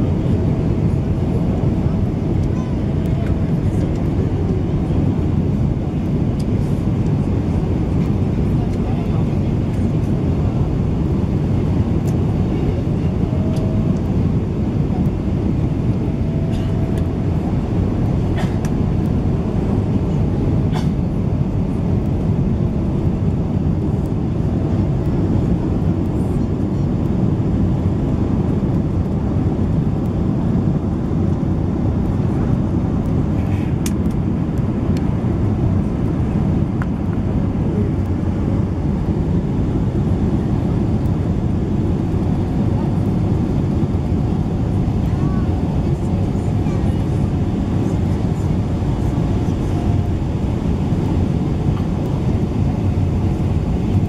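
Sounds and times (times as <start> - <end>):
airplane cabin roar: 0.0 - 54.0.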